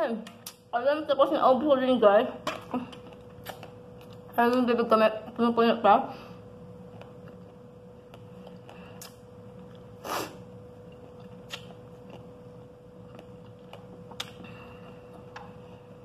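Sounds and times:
faint hum: 0.0 - 16.0
chewing and mouth noises: 2.9 - 4.3, 6.8 - 10.0, 10.8 - 15.6.

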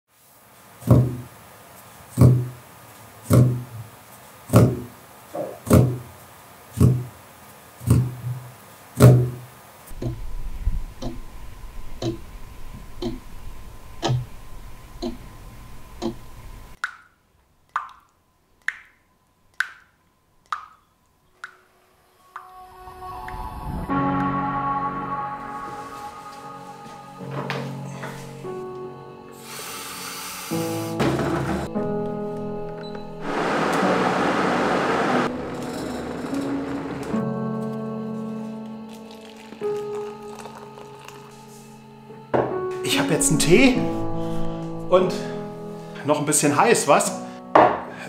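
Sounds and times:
clock ticking: 9.9 - 10.2, 11.0 - 11.2, 12.0 - 12.2, 13.0 - 13.2, 14.0 - 14.3, 15.0 - 15.3, 16.0 - 16.2
low hum: 9.9 - 16.8, 21.7 - 28.7.

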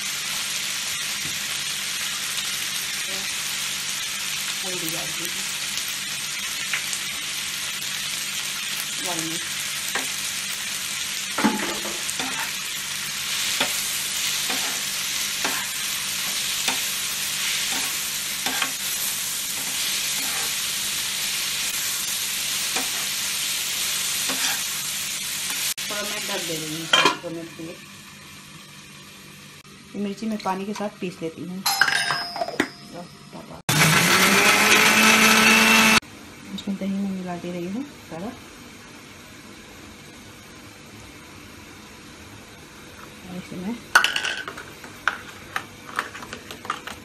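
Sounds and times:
vegetables sizzling in hot oil: 0.0 - 31.4, 33.7 - 47.0
metal spatula scraping a pan: 11.5 - 12.6, 19.6 - 20.6, 24.2 - 24.7.

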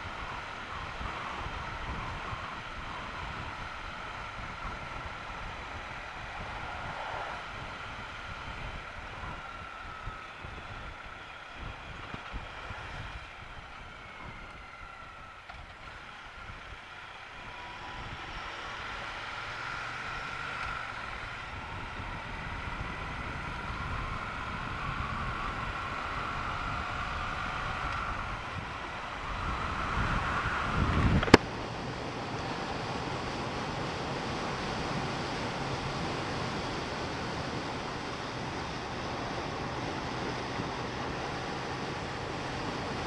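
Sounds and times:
wind buffeting microphone: 21.5 - 31.8.

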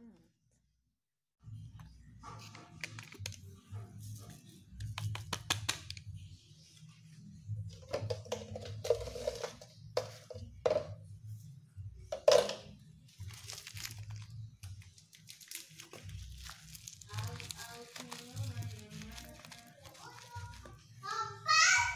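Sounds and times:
plastic sachet crinkling: 13.1 - 20.9.

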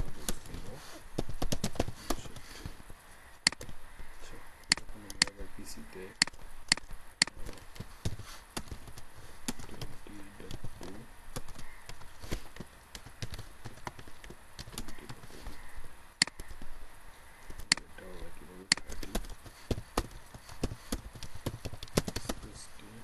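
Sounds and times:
computer mouse clicks: 4.7 - 5.4, 6.2 - 7.4.

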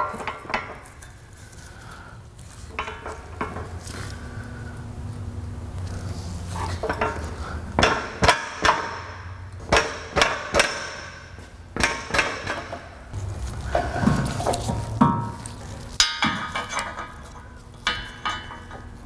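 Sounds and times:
metal clanks and knocks: 0.0 - 1.2, 2.7 - 3.9, 6.6 - 19.0
steady low hum: 0.0 - 19.0.

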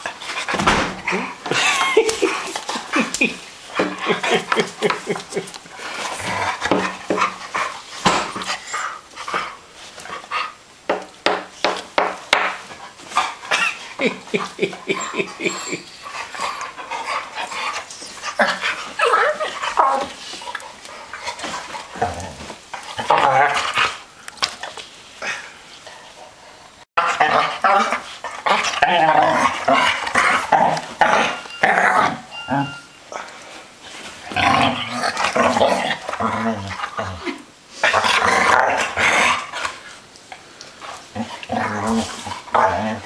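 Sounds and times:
dogs grumbling: 0.0 - 9.6, 13.0 - 24.0, 27.0 - 33.3, 34.2 - 39.9, 40.8 - 43.0
dogs huffing and panting: 0.0 - 10.6, 12.5 - 22.0
dogs whining: 13.5 - 20.6, 28.5 - 33.3.

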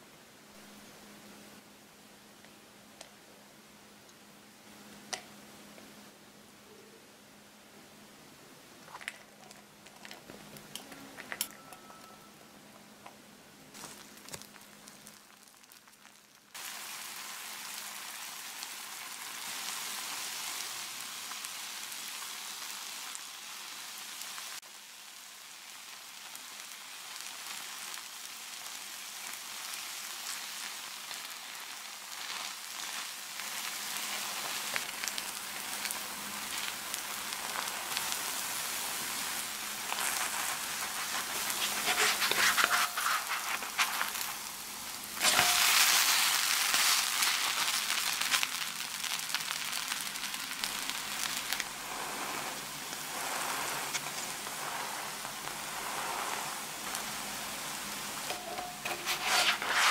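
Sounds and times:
noodles sizzling in a pan: 13.7 - 59.9.

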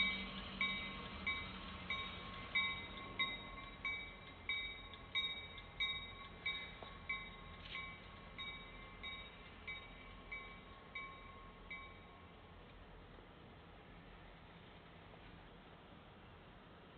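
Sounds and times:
locomotive bell ringing: 0.0 - 12.4.

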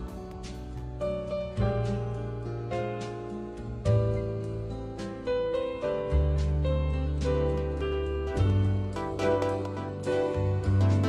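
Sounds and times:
plucked melody over bass tones: 5.6 - 11.0.

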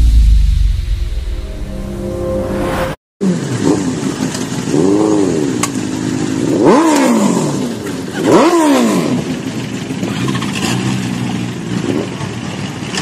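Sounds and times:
motorcycle engine revving: 0.0 - 12.4
motorcycle engines idling: 3.4 - 13.0.

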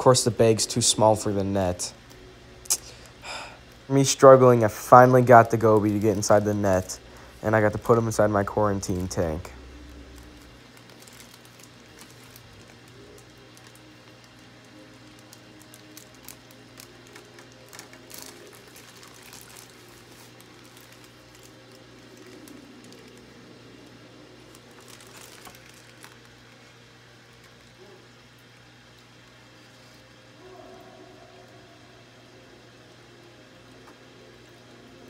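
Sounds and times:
steady low hum: 0.0 - 35.0.

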